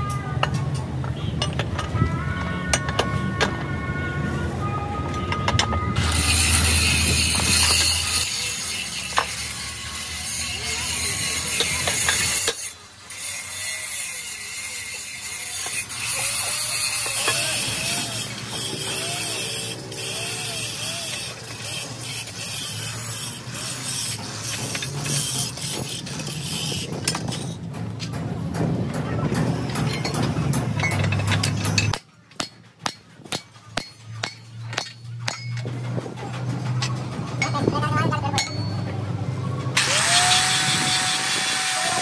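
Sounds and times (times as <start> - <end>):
rising and falling squeal: 17.0 - 21.5.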